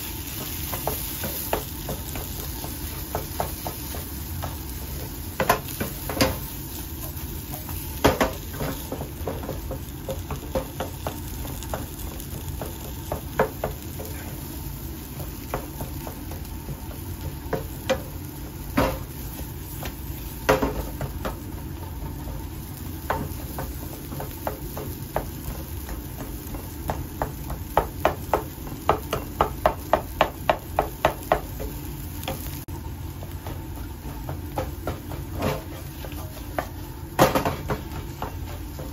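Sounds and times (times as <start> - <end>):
potatoes sizzling in frying pan: 0.0 - 38.9
spatula knocking against pan: 0.3 - 4.8, 8.0 - 14.3, 23.0 - 32.5.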